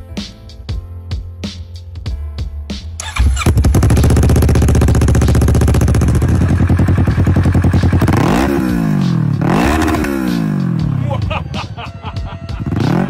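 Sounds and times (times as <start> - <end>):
motorcycle engine idling: 3.0 - 10.4
engine revving: 3.0 - 11.0, 12.6 - 13.0.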